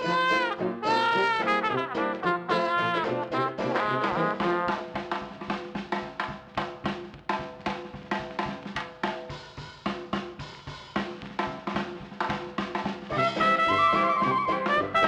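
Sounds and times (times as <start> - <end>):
brass playing: 0.0 - 5.0, 13.1 - 15.0
drum kit beat: 0.0 - 15.0.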